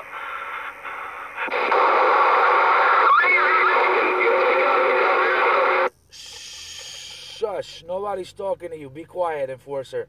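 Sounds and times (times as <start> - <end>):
radio static hiss: 0.0 - 7.8
low hum: 0.0 - 9.2.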